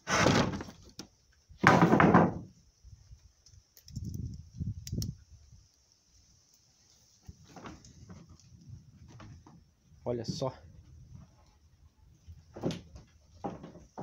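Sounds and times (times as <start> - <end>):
wooden door scraping and knocking: 0.0 - 0.8, 1.6 - 2.5, 12.5 - 14.0.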